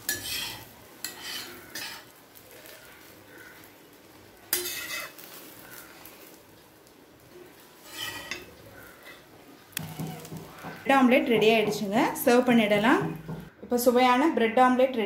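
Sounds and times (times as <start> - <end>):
steel spatula scraping griddle: 0.0 - 3.6, 4.4 - 6.4, 7.4 - 12.4
light sizzle: 0.0 - 13.9.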